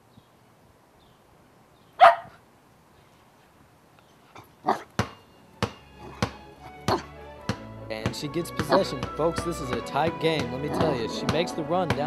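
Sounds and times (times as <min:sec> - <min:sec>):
dog yip: 0:02.0 - 0:02.4, 0:04.6 - 0:04.9.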